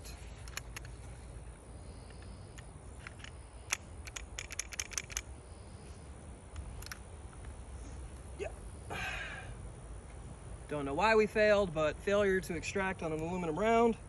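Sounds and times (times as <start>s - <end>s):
pistol clicks and rattles: 0.1s - 1.3s, 2.1s - 5.4s, 6.5s - 7.5s.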